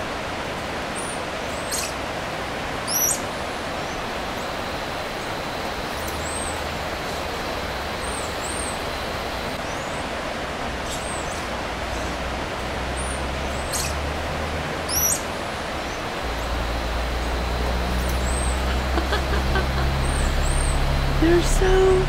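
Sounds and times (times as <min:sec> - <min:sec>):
steady rushing hiss: 0:15.2 - 0:22.0.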